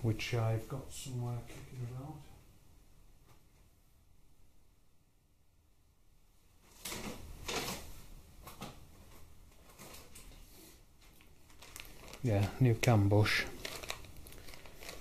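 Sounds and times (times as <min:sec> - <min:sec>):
rummaging knocks and rustles: 0:13.6 - 0:15.0.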